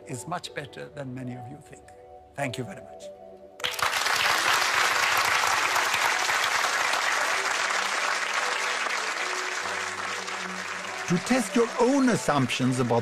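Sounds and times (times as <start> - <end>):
audience applauding: 3.6 - 13.0.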